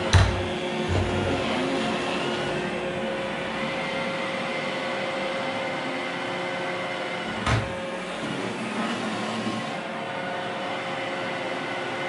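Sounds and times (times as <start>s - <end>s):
robot vacuum whirring: 8.0s - 9.9s.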